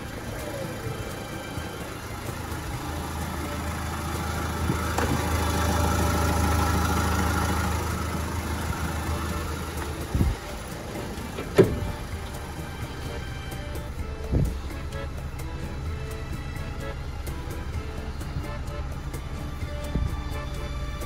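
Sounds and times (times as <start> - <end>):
car engine idling: 0.0 - 21.0
short knocks: 11.2 - 12.3.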